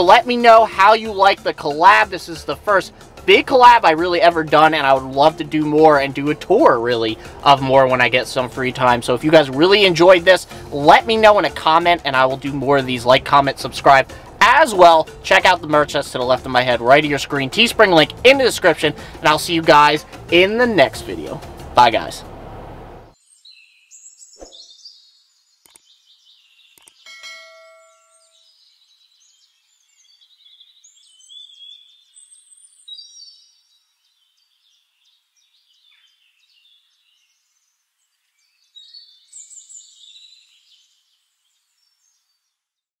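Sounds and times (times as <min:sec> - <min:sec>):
birds calling and chirping: 0:23.1 - 0:42.6
sharp clicks: 0:25.6 - 0:25.9, 0:26.7 - 0:27.0
ringing ding: 0:27.1 - 0:28.5.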